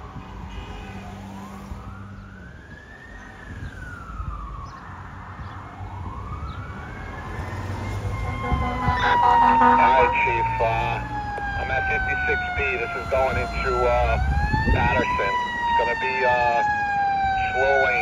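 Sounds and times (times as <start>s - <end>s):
fire siren wailing: 0.0s - 18.0s
vehicle engines running: 5.4s - 18.0s.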